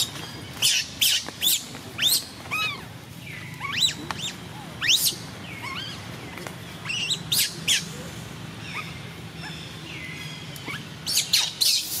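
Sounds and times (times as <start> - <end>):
baby monkey squealing: 0.6 - 2.8, 3.6 - 6.0, 10.6 - 12.0.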